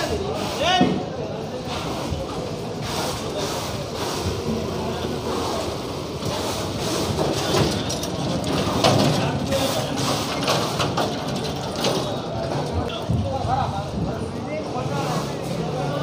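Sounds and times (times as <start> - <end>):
scattered clatter: 7.0 - 14.1.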